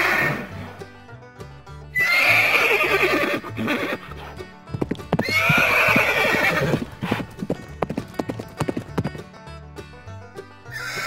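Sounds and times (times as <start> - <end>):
horse neighing: 0.0 - 0.7, 2.0 - 4.3, 5.1 - 7.4, 10.7 - 11.0
background music with bass line: 0.0 - 11.0
hoof knocks: 3.0 - 11.0.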